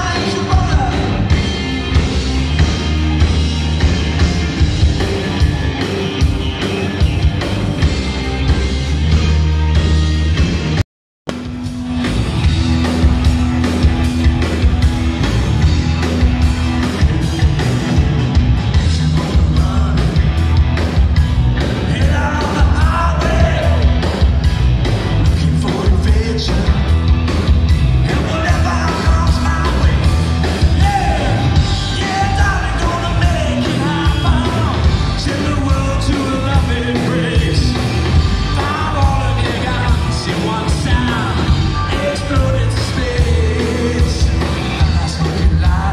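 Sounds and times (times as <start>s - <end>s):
man singing: 0.0s - 1.4s, 18.7s - 20.4s, 21.8s - 24.1s, 25.2s - 27.0s, 28.0s - 45.9s
live rock band playing: 0.0s - 45.9s.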